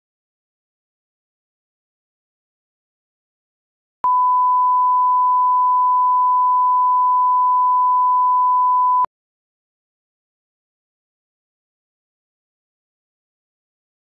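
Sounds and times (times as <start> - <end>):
steady reference tone beep: 4.0 - 9.1.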